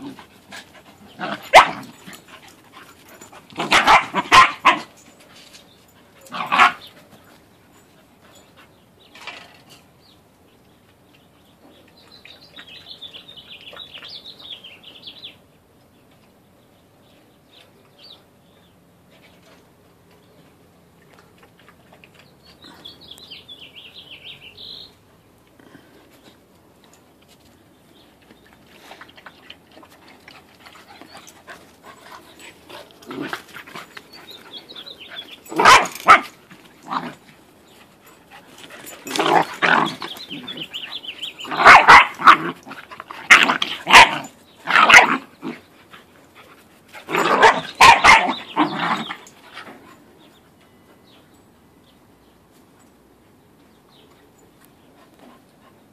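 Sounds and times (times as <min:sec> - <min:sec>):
puppies barking: 0:01.1 - 0:02.3, 0:03.5 - 0:05.0, 0:06.2 - 0:06.9, 0:34.0 - 0:37.2, 0:39.0 - 0:45.6, 0:47.1 - 0:49.3.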